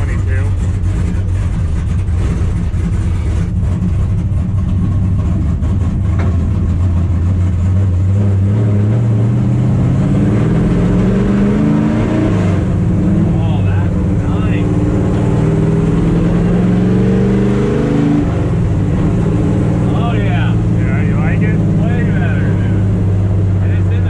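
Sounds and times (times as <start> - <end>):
race truck engine revving: 0.0 - 24.0.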